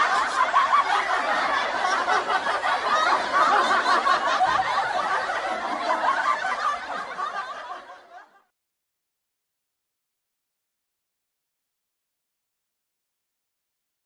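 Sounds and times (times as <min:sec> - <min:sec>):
laughter: 0:00.0 - 0:08.5.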